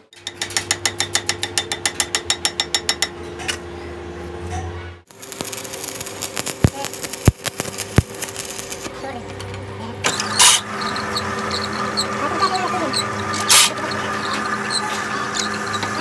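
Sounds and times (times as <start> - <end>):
arc welding crackling hiss: 5.1 - 8.9.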